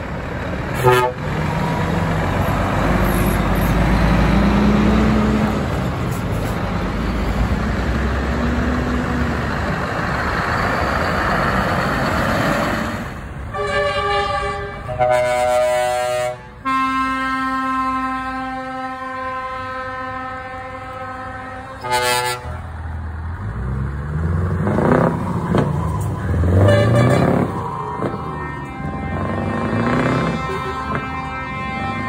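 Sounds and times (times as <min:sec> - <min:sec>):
truck diesel engines accelerating: 0:00.0 - 0:32.0
truck air horn blasts: 0:00.8 - 0:01.3, 0:13.5 - 0:22.7, 0:26.6 - 0:32.0.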